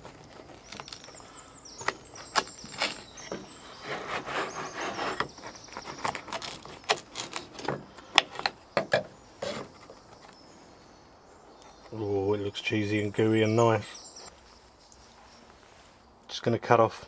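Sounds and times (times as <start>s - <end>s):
knife sawing through bread: 3.8s - 7.3s.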